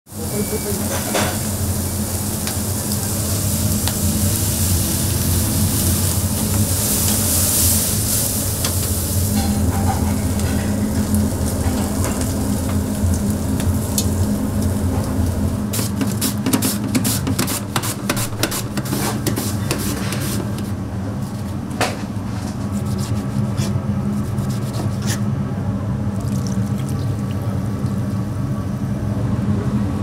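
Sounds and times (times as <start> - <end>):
meat sizzling: 0.1 - 19.9
steady low hum: 0.1 - 30.0.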